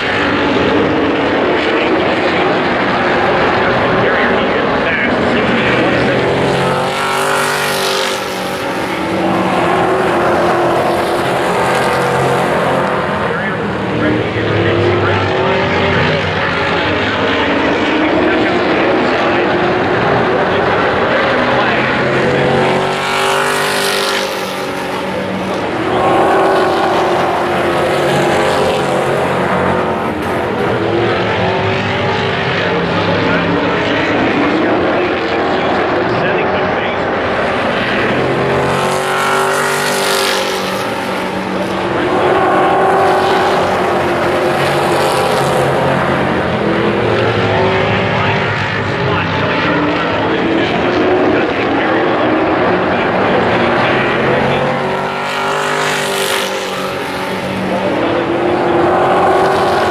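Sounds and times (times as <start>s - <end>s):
race truck engines passing: 0.0s - 59.9s.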